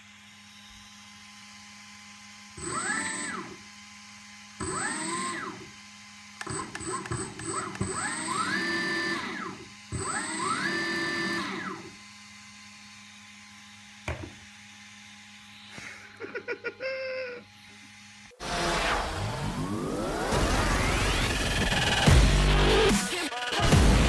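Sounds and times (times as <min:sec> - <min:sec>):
electric motor whine: 0:00.0 - 0:22.9
music: 0:20.4 - 0:24.0.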